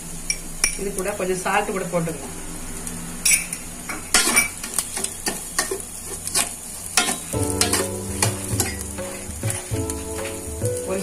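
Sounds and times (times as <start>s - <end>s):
vegetables sizzling: 0.0s - 11.0s
spoon scraping metal pan: 3.3s - 10.5s.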